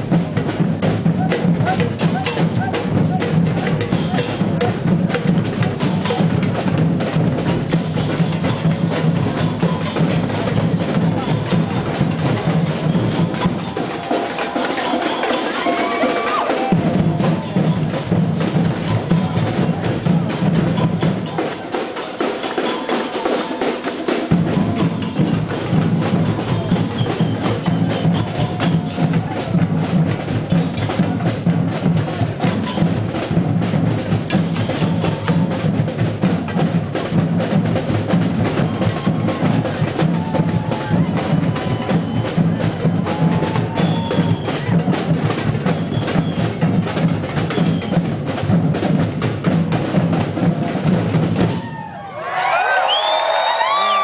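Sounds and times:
samba percussion band drumming: 0:00.0 - 0:52.2
deep bass drums: 0:24.3 - 0:51.6.

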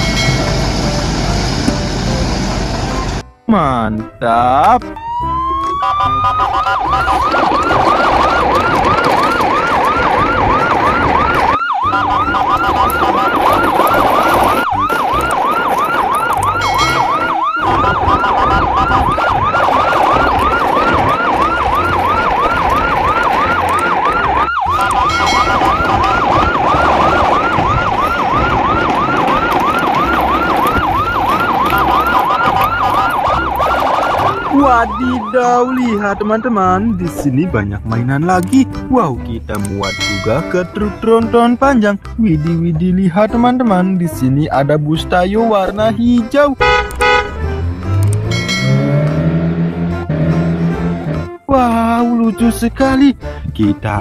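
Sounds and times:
siren yelping: 0:04.6 - 0:37.0, 0:46.6 - 0:51.5.

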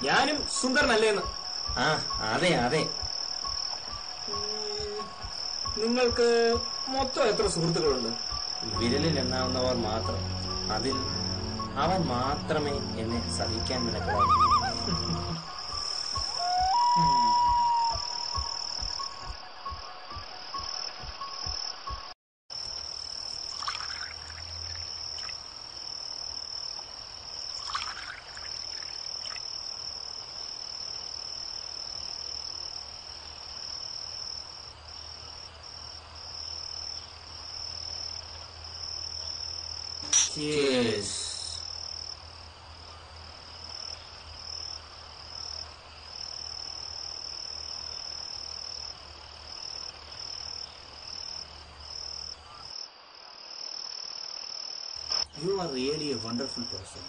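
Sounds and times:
background music: 0:00.0 - 0:22.1
insect chirring: 0:00.0 - 0:57.0
short sound falling in pitch: 0:10.4 - 0:15.6, 0:16.2 - 0:18.6.

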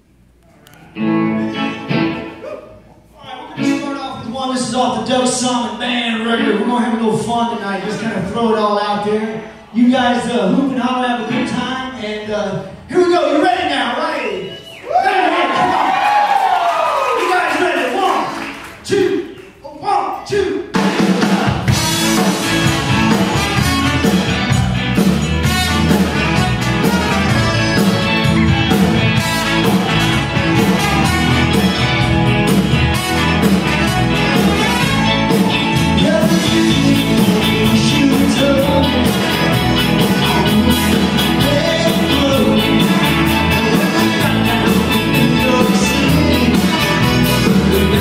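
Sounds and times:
electric guitars: 0:00.8 - 0:02.5, 0:20.8 - 0:48.0
live rock band playing: 0:01.0 - 0:02.4, 0:20.7 - 0:48.0
drums: 0:15.4 - 0:16.5, 0:20.6 - 0:48.0
keyboard: 0:20.8 - 0:48.0
person singing: 0:34.2 - 0:48.0.

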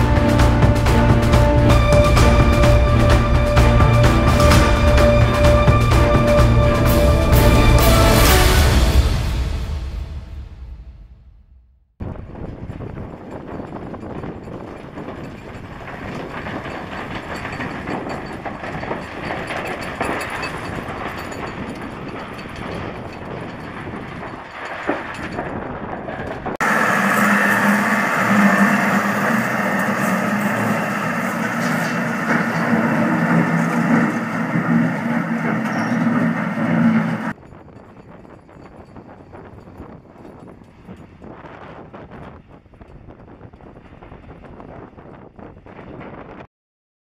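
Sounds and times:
tractor engine: 0:00.0 - 0:09.8, 0:14.1 - 0:37.4
land roller clattering: 0:12.4 - 0:37.4.

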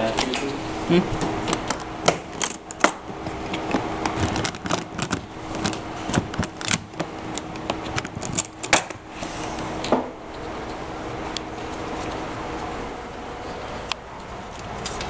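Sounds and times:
faint steady hum: 0:00.0 - 0:15.0
equipment clicks and clatter: 0:01.4 - 0:09.0.

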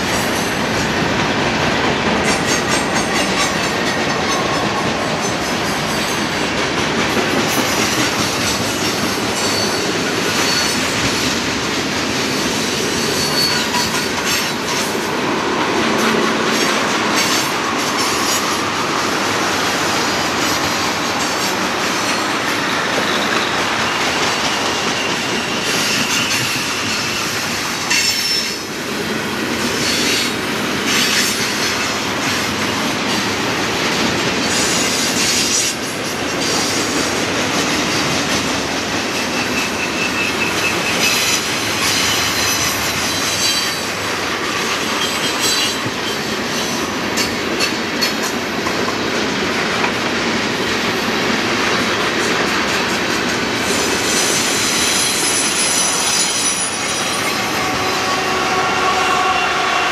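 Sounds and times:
diesel locomotive engine: 0:00.0 - 0:59.9
train wheels rumbling on rail: 0:00.0 - 0:59.9
wheel squeals: 0:09.1 - 0:11.0, 0:13.0 - 0:14.4, 0:39.1 - 0:43.8, 0:54.0 - 0:58.0.

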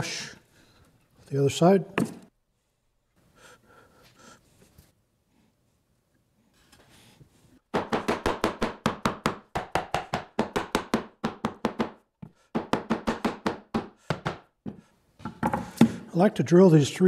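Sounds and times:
rubber mallet knocking on wood: 0:07.7 - 0:16.0.

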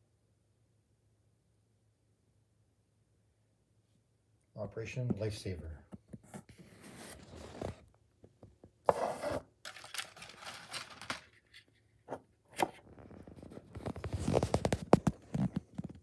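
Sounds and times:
packing paper rustling and scraping: 0:06.4 - 0:07.9, 0:08.9 - 0:11.7, 0:13.0 - 0:15.4.

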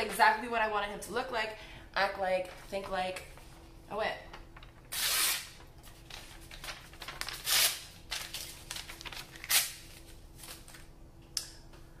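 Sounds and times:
paper tearing: 0:04.9 - 0:10.6.

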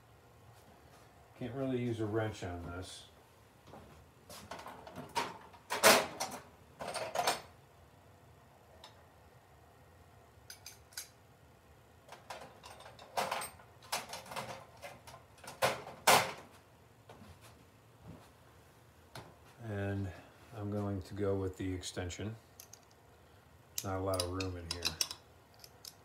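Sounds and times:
metal hand tools clinking: 0:23.8 - 0:26.0.

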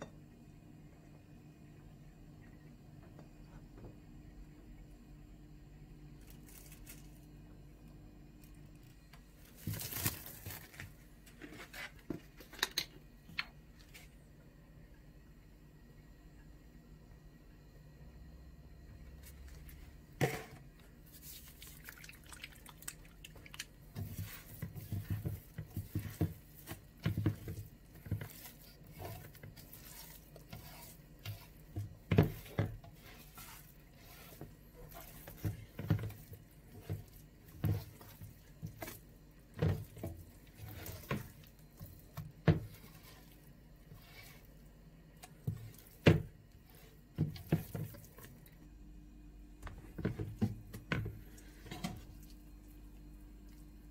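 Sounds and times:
hand kneading wet dough: 0:19.0 - 0:48.6, 0:49.6 - 0:53.9.

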